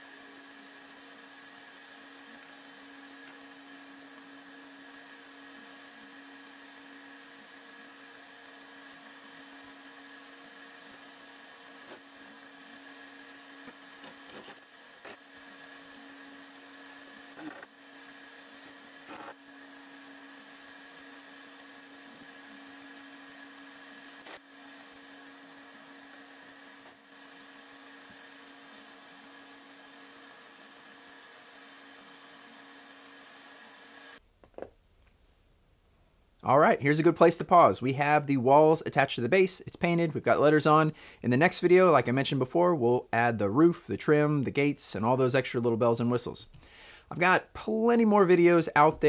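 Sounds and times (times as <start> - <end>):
machine humming with steady tones: 0.0 - 34.2.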